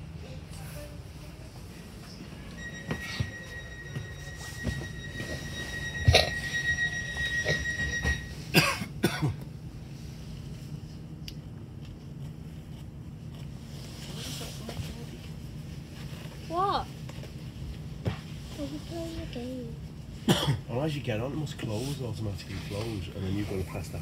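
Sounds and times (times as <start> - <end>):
electric train rumble and whine: 0.0 - 24.0
person coughing: 6.1 - 6.4, 8.5 - 9.4, 20.3 - 20.7.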